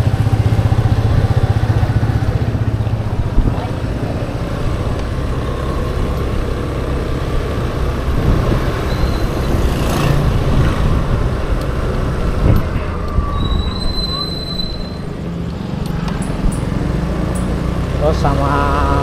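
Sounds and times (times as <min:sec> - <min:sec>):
scooter engine running: 0:00.0 - 0:12.8
riding noise rumble: 0:00.0 - 0:19.0.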